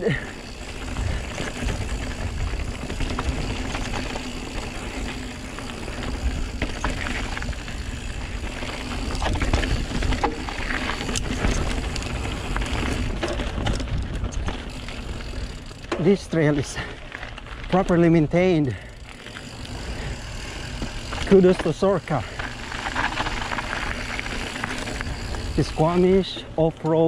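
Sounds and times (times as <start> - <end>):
bike tyres rolling on gravel: 0.0 - 27.0
stones and bike rattling: 0.0 - 27.0.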